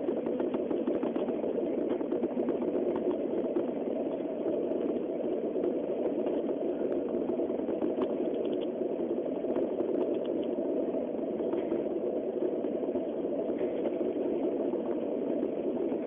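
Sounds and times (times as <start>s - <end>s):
train running noise in cabin: 0.0s - 16.0s
faint ticks: 0.1s - 10.6s.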